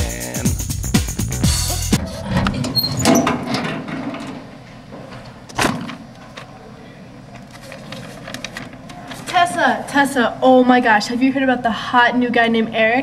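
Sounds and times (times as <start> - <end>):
faint room noise: 2.0 - 13.0
rustling: 7.4 - 9.5.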